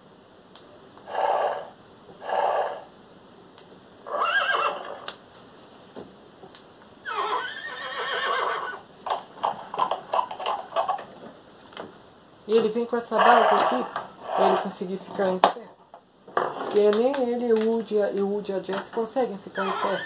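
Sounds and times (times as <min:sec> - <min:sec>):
electronic horse whinny: 0:01.1 - 0:02.9, 0:04.1 - 0:05.1, 0:07.0 - 0:08.8, 0:13.1 - 0:14.7, 0:19.5 - 0:20.0.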